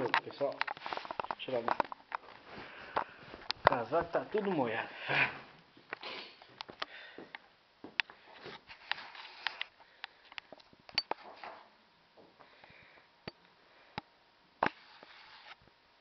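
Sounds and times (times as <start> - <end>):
soft breathy sounds: 2.3 - 3.5, 4.8 - 8.8, 12.2 - 14.2
camera handling clicks and rubbing: 8.7 - 9.7.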